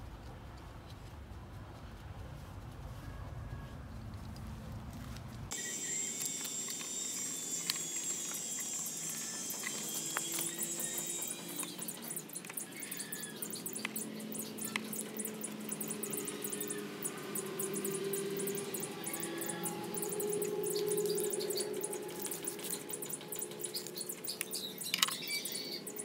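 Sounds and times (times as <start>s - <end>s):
high-pitched chirping: 5.5s - 26.0s.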